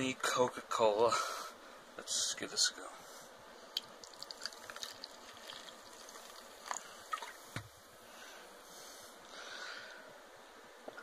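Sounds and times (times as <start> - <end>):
soda pouring into paper cup: 3.8 - 7.5
fizz crackling: 3.8 - 7.8.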